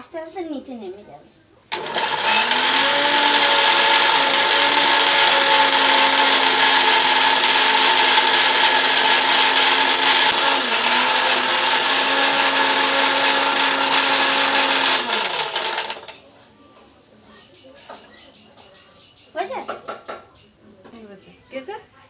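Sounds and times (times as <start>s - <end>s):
mixer grinder whining: 1.7s - 16.2s.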